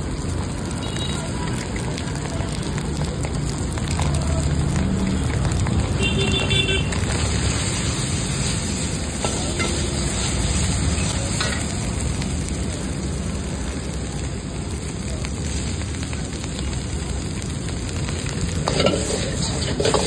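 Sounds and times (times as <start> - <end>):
vegetables sizzling in a wok: 0.0 - 20.0
ladle clinking and scraping wok: 7.0 - 11.7, 18.5 - 20.0.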